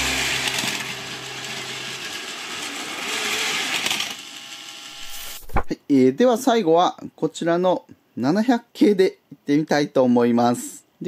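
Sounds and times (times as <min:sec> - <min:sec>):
toy trains whirring on track: 0:00.0 - 0:05.4.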